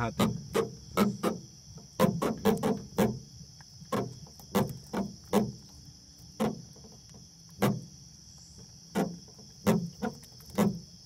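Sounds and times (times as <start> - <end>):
catfish croaking: 0.0 - 3.2
night insects chirring: 0.0 - 11.0.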